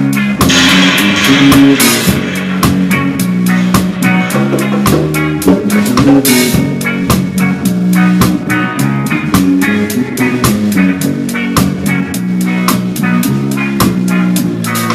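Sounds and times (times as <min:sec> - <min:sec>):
bass guitar line: 0:00.0 - 0:14.9
cymbal crash: 0:00.4 - 0:06.9.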